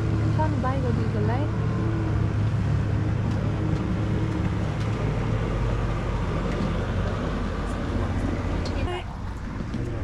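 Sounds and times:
motorboat engine droning: 0.0 - 10.0
wind: 0.0 - 10.0.

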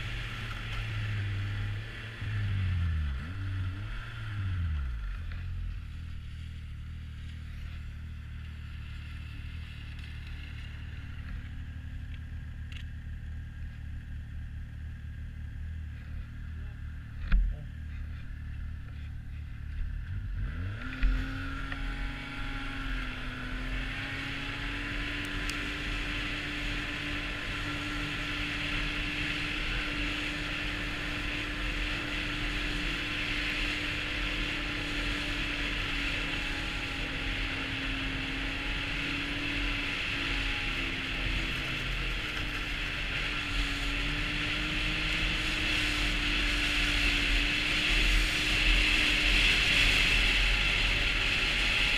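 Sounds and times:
snowmobile engine revving: 20.1 - 51.9.

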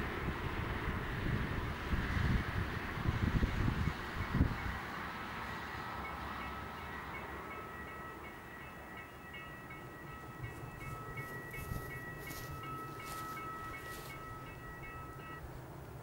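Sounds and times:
faint train rumble: 0.0 - 16.0
level crossing warning bell: 3.8 - 15.5.

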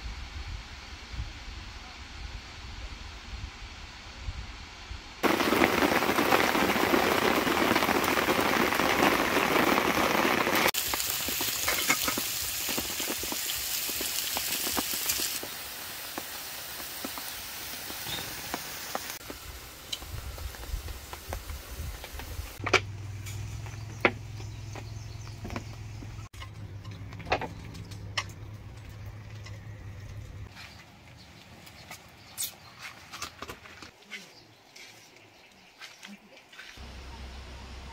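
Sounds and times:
onions sizzling in a pan: 5.2 - 24.8.

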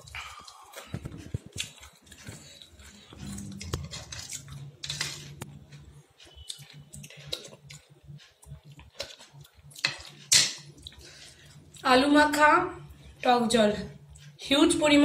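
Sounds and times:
chewing: 0.0 - 11.9
faint low hum: 0.0 - 15.0.

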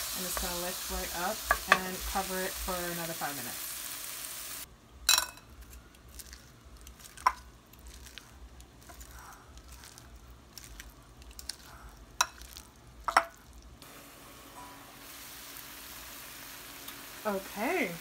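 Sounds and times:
faint hiss of food simmering: 0.0 - 18.0
wet squishing of salad tossing: 6.0 - 13.7.

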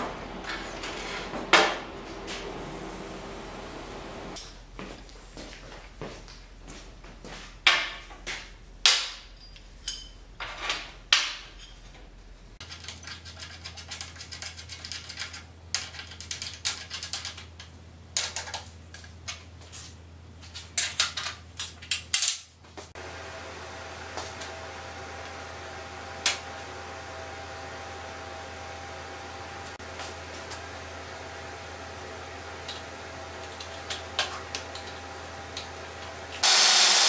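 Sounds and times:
metal tools clanking on steel table: 9.1 - 12.0.

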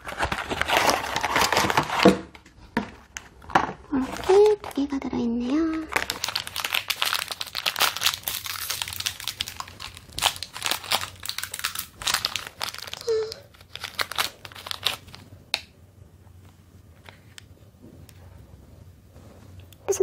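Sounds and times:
foil wrapper crinkling and tearing: 0.0 - 2.2, 3.4 - 15.7.

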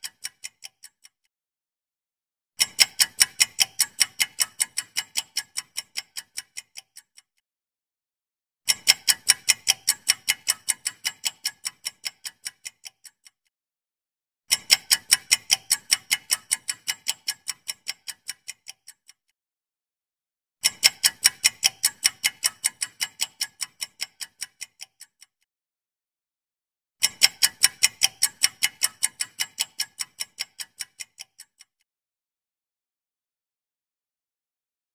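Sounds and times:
ticking countdown timer: 0.0 - 1.3, 2.6 - 7.4, 8.7 - 13.5, 14.5 - 19.3, 20.6 - 25.5, 27.0 - 31.8.

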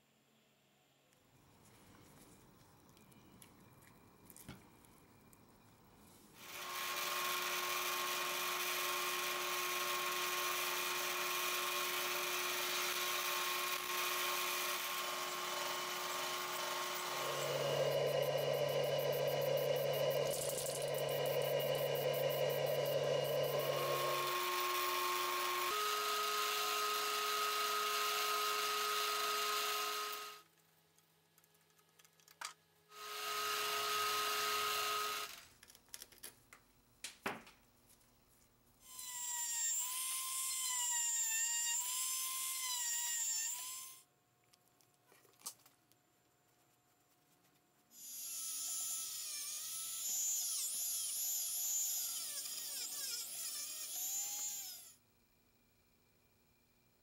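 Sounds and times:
power tool motor whirring: 6.4 - 30.4, 48.0 - 55.0
rotary tool whining: 6.4 - 30.4, 48.0 - 55.0.

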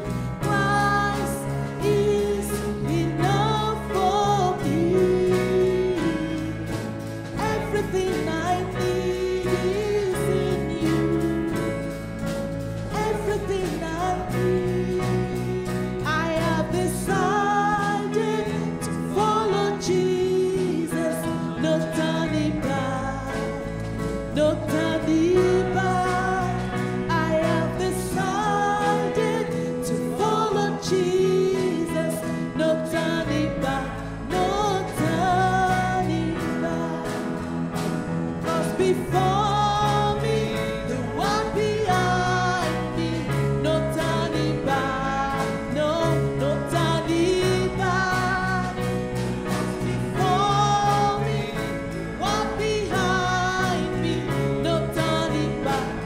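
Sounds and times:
worship band playing: 0.0 - 56.0.

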